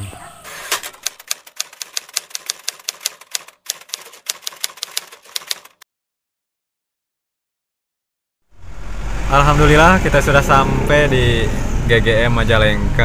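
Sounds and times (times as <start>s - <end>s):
typewriter key clacks: 0.8s - 5.8s.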